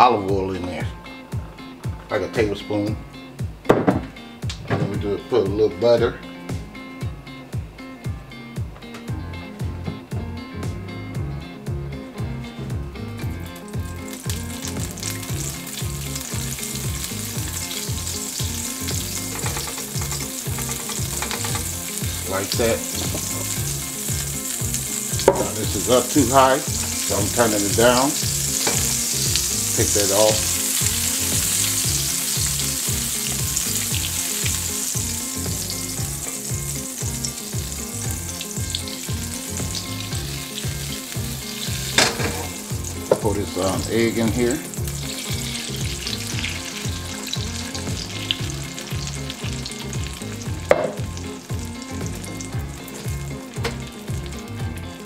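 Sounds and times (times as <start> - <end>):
background music beat: 0.0 - 55.0
butter sizzling in oil: 12.3 - 55.0.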